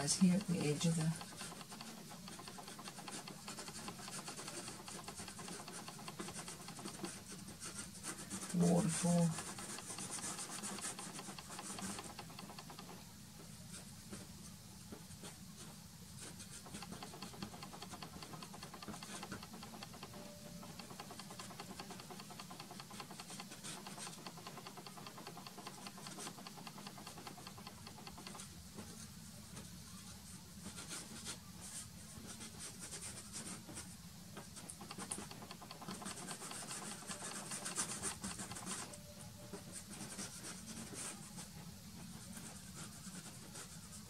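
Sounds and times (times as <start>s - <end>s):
pastel scratching on gritty board: 0.0s - 13.0s, 16.4s - 20.2s, 34.6s - 39.0s.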